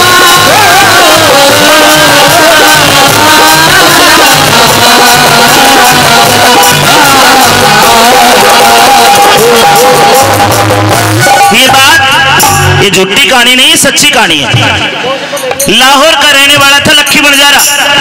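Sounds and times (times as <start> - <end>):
steady percussion beat: 0.0 - 13.0
wavering lead melody: 0.0 - 13.0.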